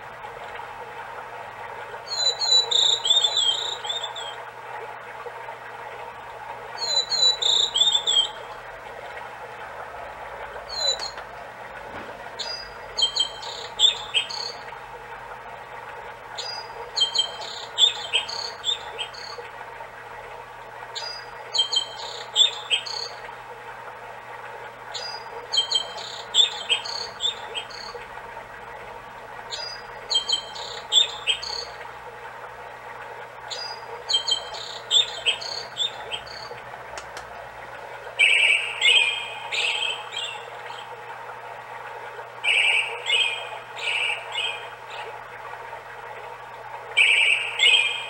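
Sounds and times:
recorded stream murmur: 0:00.0 - 0:48.0
recorded birdsong from small speaker: 0:02.0 - 0:04.4, 0:06.8 - 0:08.5, 0:10.7 - 0:11.2, 0:12.4 - 0:14.7, 0:16.4 - 0:19.4, 0:20.9 - 0:23.2, 0:24.9 - 0:28.0, 0:29.5 - 0:31.8, 0:33.5 - 0:36.6, 0:38.2 - 0:40.9, 0:42.4 - 0:45.1, 0:47.0 - 0:48.0.

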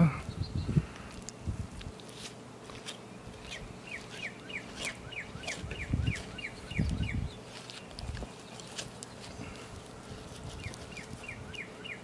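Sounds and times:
bird chirping: 0:00.2 - 0:00.8, 0:03.0 - 0:12.0.

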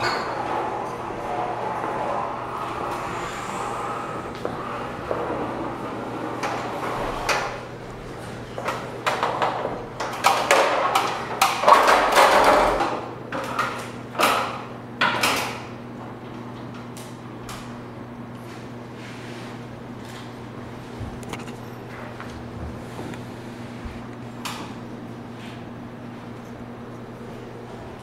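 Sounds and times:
steady low hum: 0:00.0 - 0:11.5.

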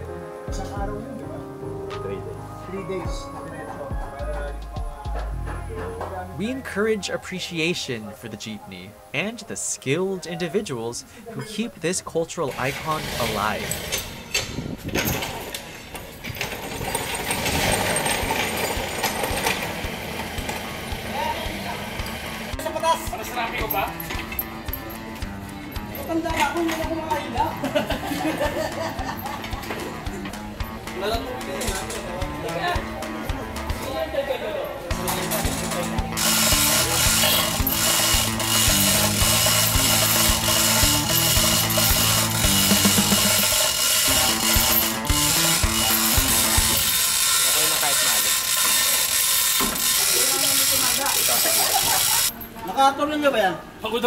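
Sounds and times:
background music with steady beat: 0:00.0 - 0:11.9, 0:18.3 - 0:52.4
chain hoist ratcheting: 0:12.4 - 0:20.6, 0:35.0 - 0:52.5
engine stand rattling: 0:12.8 - 0:19.8, 0:35.0 - 0:47.1
small wheels rolling on concrete: 0:12.8 - 0:24.3, 0:35.0 - 0:52.4.

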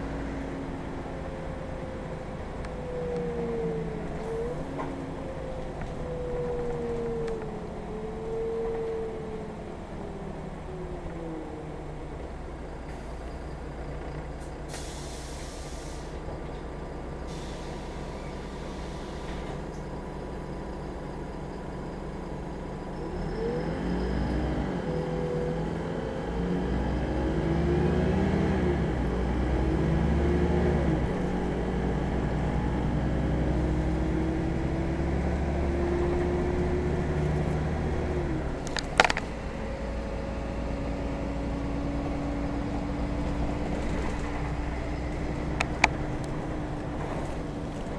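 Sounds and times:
bus diesel engine: 0:00.0 - 0:47.9
compressed air hisses: 0:14.7 - 0:16.2.

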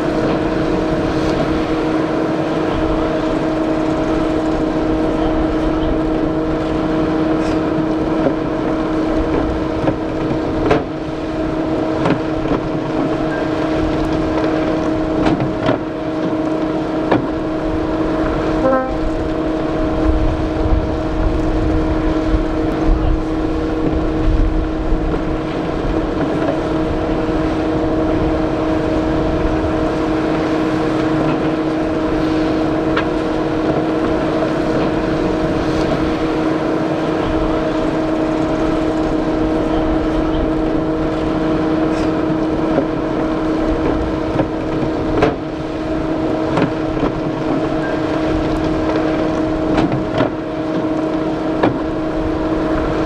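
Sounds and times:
drone propellers humming: 0:00.0 - 0:53.0
wind rumble on microphone: 0:00.0 - 0:53.0.

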